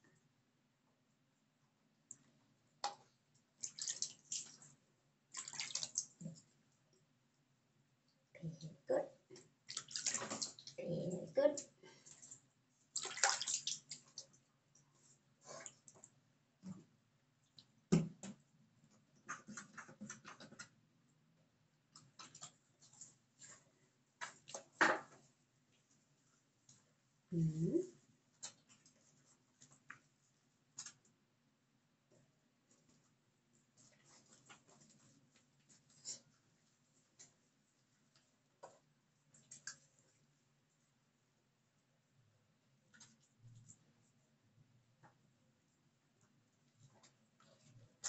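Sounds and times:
hands scrubbing wet dog coat: 3.6s - 6.5s, 12.1s - 14.4s
water splashing over puppy: 13.0s - 14.0s.

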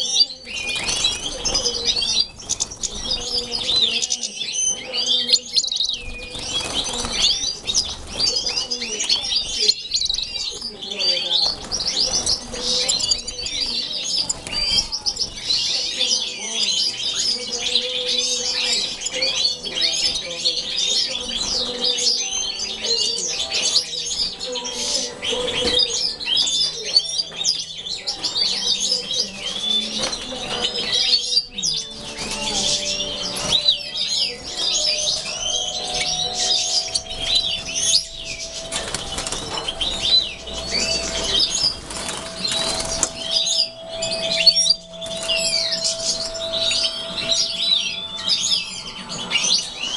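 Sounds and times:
goldfinches twittering and calling: 0.0s - 49.9s
wings fluttering: 5.6s - 15.7s, 35.8s - 47.5s.

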